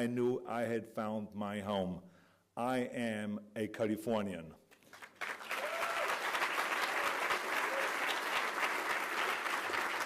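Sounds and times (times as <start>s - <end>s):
audience applauding: 4.9s - 10.0s.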